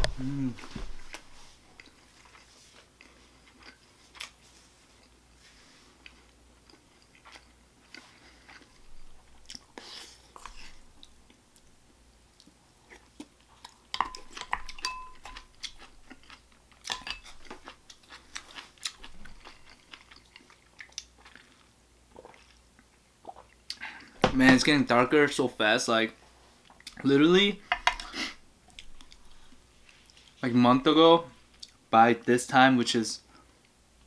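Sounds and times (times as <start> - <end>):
person chewing food: 0.0 - 24.2
spoon clinking ceramic bowl: 14.0 - 15.4.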